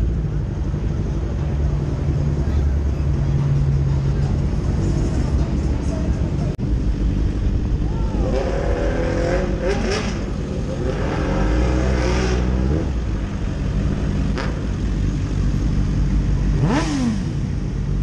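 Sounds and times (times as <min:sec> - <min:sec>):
motorcycle engines running: 0:00.0 - 0:18.0
motorcycle engine revving: 0:08.2 - 0:18.0.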